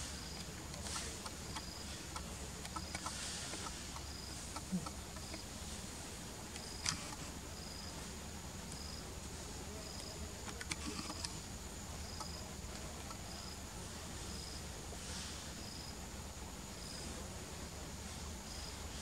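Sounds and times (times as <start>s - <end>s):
insects buzzing: 0.0s - 19.0s
sharp clicks: 0.4s - 4.1s, 6.5s - 7.2s, 10.0s - 11.4s.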